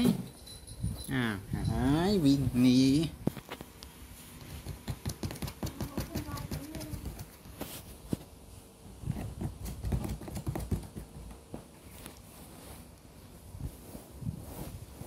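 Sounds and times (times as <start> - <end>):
blanket rustling: 11.8 - 15.0.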